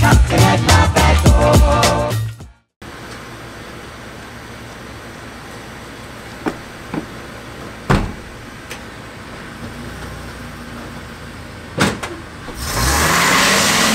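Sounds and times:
truck door slamming shut: 0:07.9 - 0:08.4, 0:11.8 - 0:12.2.

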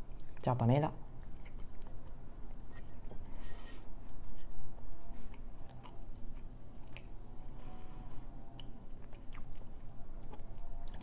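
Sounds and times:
person chewing: 0:01.2 - 0:07.3, 0:08.3 - 0:11.0.

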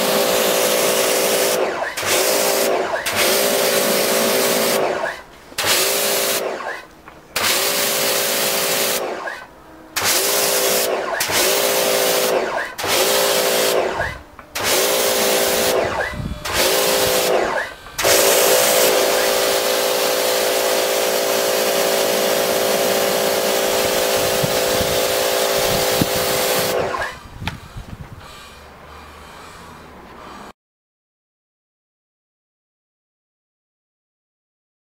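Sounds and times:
pressure washer pump whining: 0:00.0 - 0:28.9
water spraying onto car: 0:18.1 - 0:26.7.

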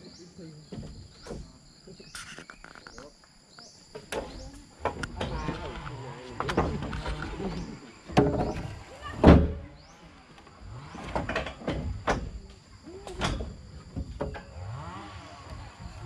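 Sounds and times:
logs knocking together: 0:03.9 - 0:09.6.

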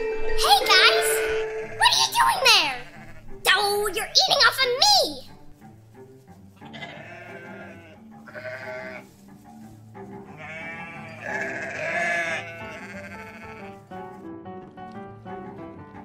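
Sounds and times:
background music: 0:00.0 - 0:16.0
farm animal calls: 0:02.5 - 0:03.4, 0:06.6 - 0:13.8.

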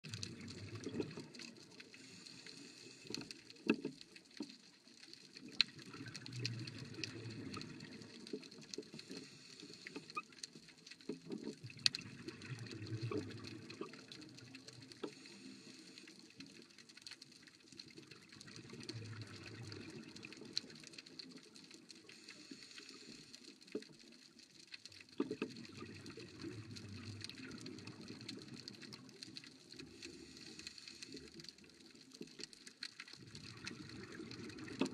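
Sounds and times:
underwater breathing bubbles: 0:00.0 - 0:03.9, 0:05.4 - 0:10.5, 0:11.2 - 0:16.6, 0:18.0 - 0:21.2, 0:25.2 - 0:32.0, 0:33.2 - 0:34.9.

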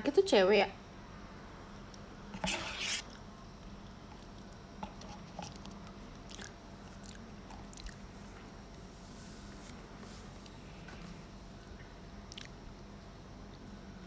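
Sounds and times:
chewing and mouth clicks: 0:05.4 - 0:08.4, 0:12.3 - 0:12.6.

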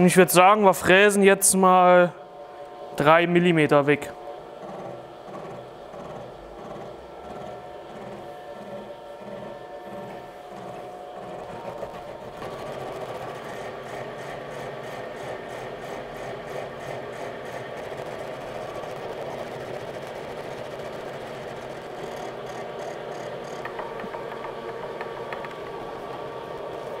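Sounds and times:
milling machine cutting metal: 0:04.6 - 0:19.1.

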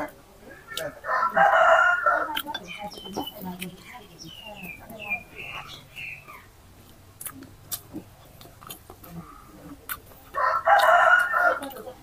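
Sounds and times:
rooster crowing: 0:01.0 - 0:02.4, 0:10.3 - 0:11.8.

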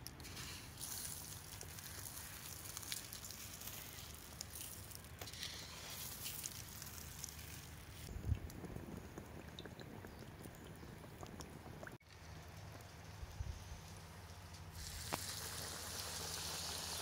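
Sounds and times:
breadcrumbs sprinkled by hand: 0:00.0 - 0:08.1.

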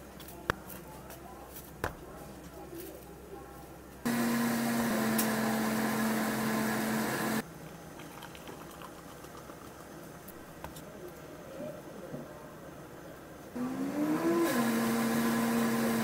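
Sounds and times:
ice machine motor hum: 0:04.0 - 0:07.4, 0:13.6 - 0:16.0.

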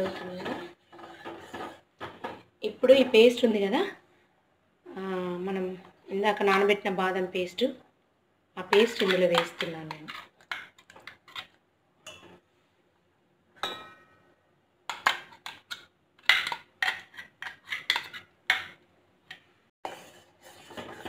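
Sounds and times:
stirring in a pot: 0:00.0 - 0:03.4, 0:08.6 - 0:12.6, 0:14.9 - 0:21.0
spoon scraping metal jar: 0:16.4 - 0:18.3.

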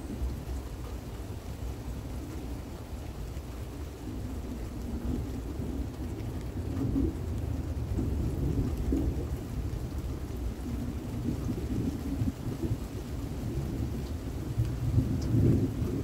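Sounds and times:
rain falling: 0:00.0 - 0:16.0
thunder rumbling: 0:04.0 - 0:16.0.

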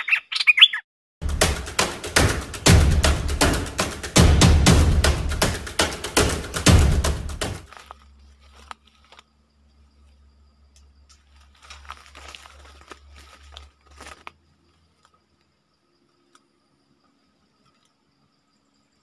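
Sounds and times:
crackles and clicks from handling: 0:07.6 - 0:18.0
faint ticks: 0:14.2 - 0:18.1.

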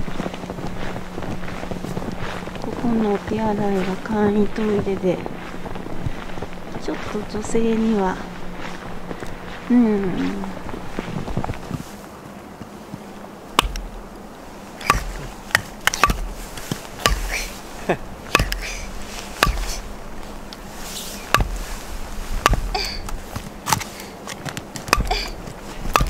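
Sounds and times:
dull low thuds: 0:12.9 - 0:14.1, 0:14.8 - 0:23.7, 0:24.9 - 0:26.0
sharp clicks and knocks: 0:13.6 - 0:13.9, 0:14.8 - 0:17.3, 0:18.3 - 0:18.7, 0:22.4 - 0:26.0.

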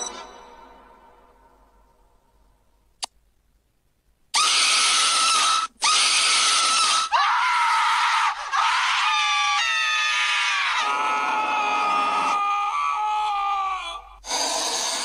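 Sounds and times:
harsh screaming: 0:04.4 - 0:15.0.

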